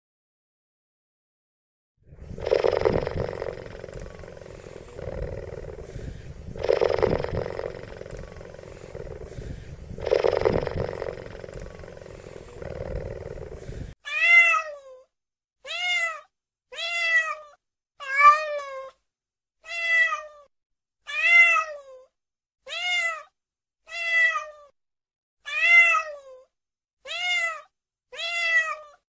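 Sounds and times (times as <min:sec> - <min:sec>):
jaguar growling: 0:02.2 - 0:14.0
cat meowing: 0:14.1 - 0:15.0, 0:15.6 - 0:18.9, 0:19.6 - 0:20.5, 0:21.1 - 0:22.0, 0:22.7 - 0:23.3, 0:23.9 - 0:24.7, 0:25.5 - 0:26.4, 0:27.1 - 0:29.0.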